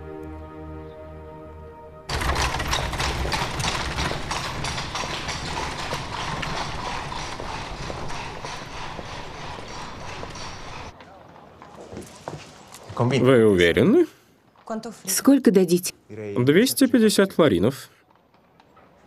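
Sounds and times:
street bustle: 2.1s - 13.1s, 17.7s - 19.0s
horse hooves clip-clopping on pavement: 2.1s - 13.2s, 17.9s - 19.0s.

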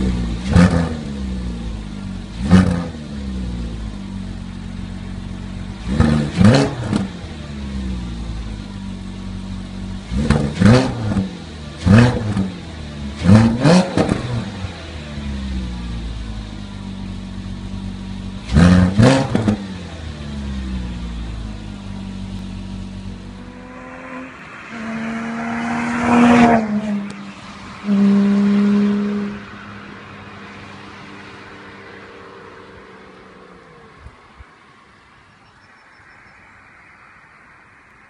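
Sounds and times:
car engine idling and revving: 0.0s - 38.0s
car driving past: 20.4s - 38.0s.

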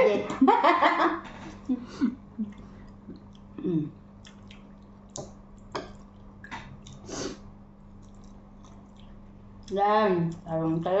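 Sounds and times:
low hum from a voice: 0.0s - 11.0s
person chewing: 2.3s - 10.5s.

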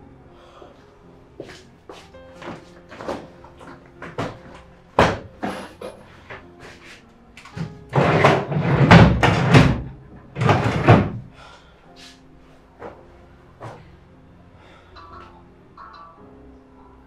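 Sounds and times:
quiet background music: 0.0s - 17.0s
desk drawers and papers rustling: 1.4s - 11.3s.

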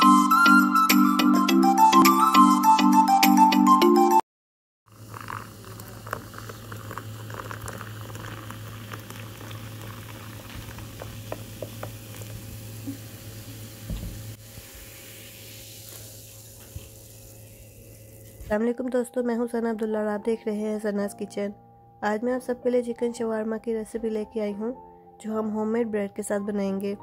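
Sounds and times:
foam fizzing and crackling: 4.9s - 18.5s
soft drink pouring into glass: 4.9s - 18.5s.

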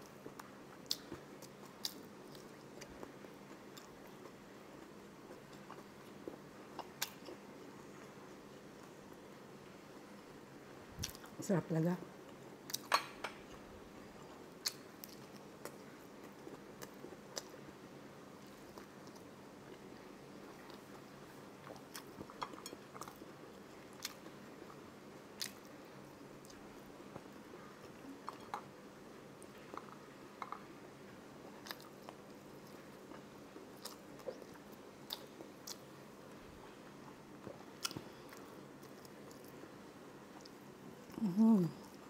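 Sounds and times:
faint room hum: 0.0s - 42.0s
person chewing food: 0.3s - 7.4s, 11.0s - 11.4s, 12.3s - 17.7s, 21.6s - 24.8s, 25.4s - 25.7s, 31.4s - 35.9s, 36.6s - 39.6s.

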